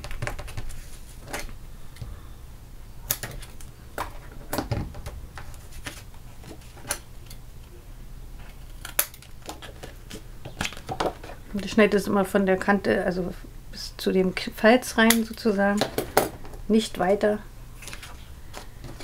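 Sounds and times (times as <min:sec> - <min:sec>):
paper and tape rustling: 0:00.0 - 0:01.6, 0:03.2 - 0:07.0.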